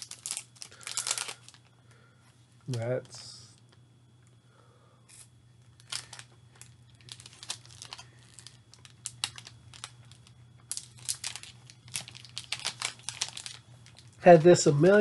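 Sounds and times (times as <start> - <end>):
plastic wrapper crinkling: 0.0 - 1.7, 5.8 - 15.0.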